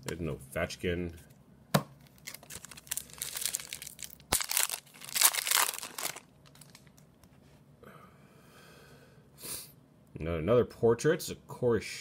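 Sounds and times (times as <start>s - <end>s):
plastic wrapper crinkling: 2.0s - 7.1s.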